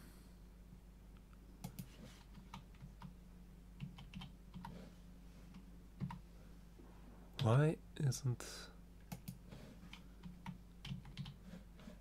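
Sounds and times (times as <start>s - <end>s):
low electrical hum: 0.0s - 12.0s
computer keyboard clicks: 3.8s - 4.7s, 9.1s - 11.4s.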